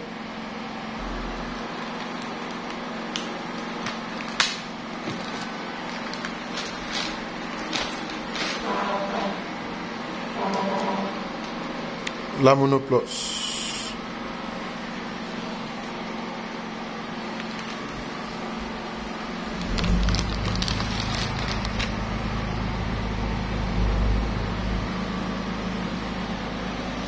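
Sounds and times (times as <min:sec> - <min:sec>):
plastic wrapping crinkling: 0:01.7 - 0:08.7, 0:19.5 - 0:22.4
low rumble: 0:19.4 - 0:25.8.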